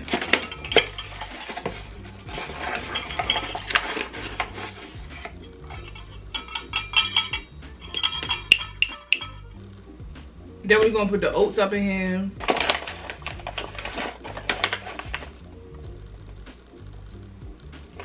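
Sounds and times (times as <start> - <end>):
metal measuring cups clinking: 0.0 - 9.6, 12.4 - 15.3.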